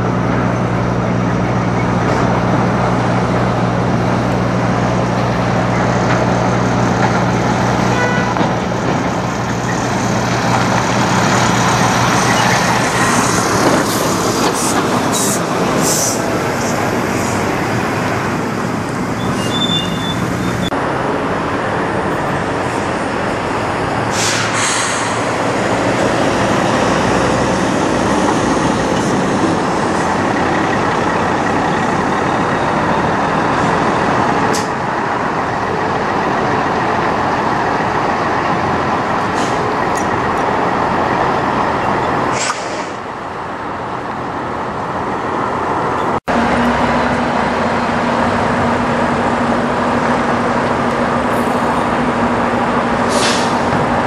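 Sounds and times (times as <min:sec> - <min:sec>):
truck diesel engines: 0:00.0 - 0:54.0
short air brake hisses: 0:24.1 - 0:25.3, 0:42.3 - 0:43.0, 0:53.1 - 0:53.6.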